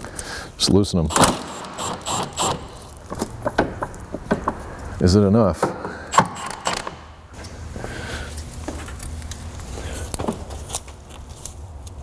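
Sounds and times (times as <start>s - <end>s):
tools clicking on metal parts: 6.1s - 7.0s.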